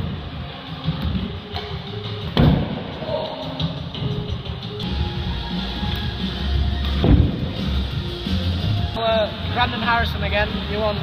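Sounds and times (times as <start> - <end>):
music with steady beat: 0.0 - 11.0
loud thump: 2.4 - 2.8, 7.0 - 7.6.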